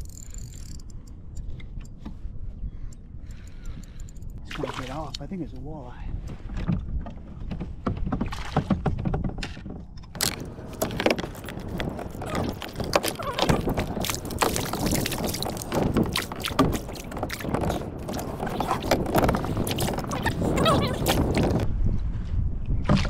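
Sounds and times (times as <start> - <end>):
water splashing beside kayak: 10.2 - 21.7
fish splashing in net: 10.8 - 21.5.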